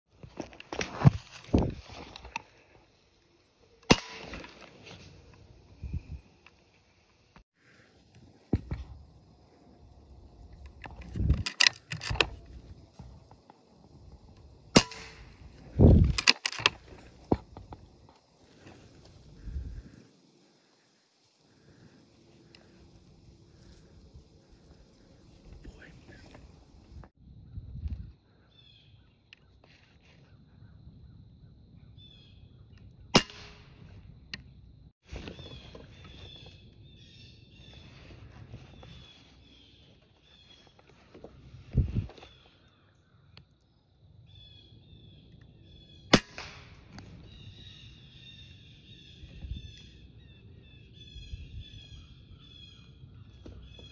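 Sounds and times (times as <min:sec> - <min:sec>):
sharp rifle shot: 0:03.9 - 0:04.5, 0:14.8 - 0:15.3, 0:33.2 - 0:33.8, 0:46.1 - 0:46.9.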